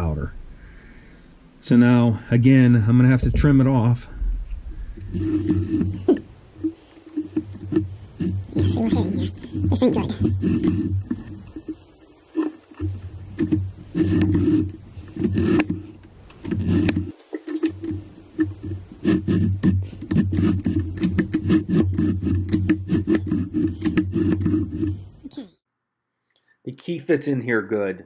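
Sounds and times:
cutter scraping metal: 0:05.0 - 0:25.2.

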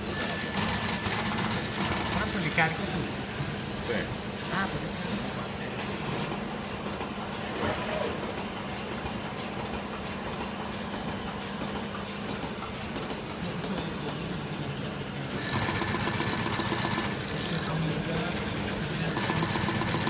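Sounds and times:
machine whirring and humming: 0:00.0 - 0:20.0
sharp mechanical ticks: 0:00.6 - 0:02.3, 0:15.4 - 0:17.8, 0:19.1 - 0:20.0.

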